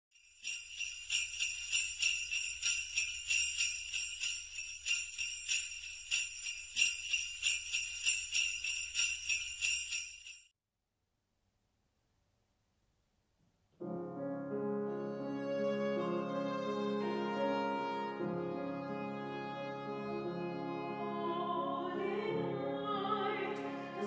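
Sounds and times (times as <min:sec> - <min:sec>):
sleigh bells shaken: 0:00.1 - 0:10.5.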